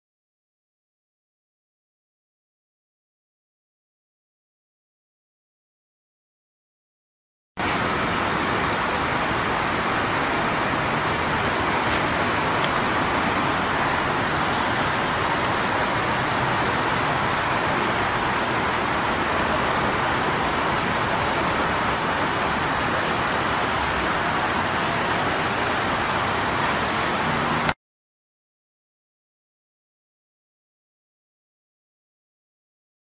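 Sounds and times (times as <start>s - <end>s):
steady rushing noise: 7.6s - 27.8s.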